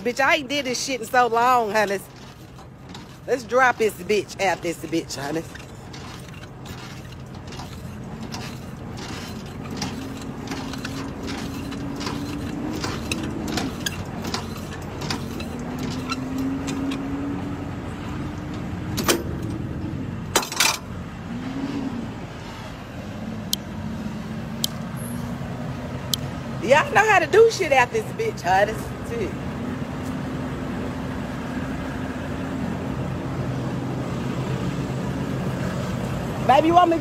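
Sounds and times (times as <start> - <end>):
truck engine hum: 0.0 - 37.0
crank clicking: 5.4 - 17.1.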